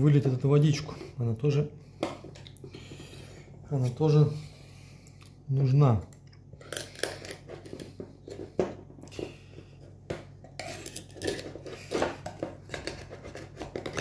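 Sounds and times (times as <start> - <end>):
knife scraping oyster shell: 10.5 - 12.0.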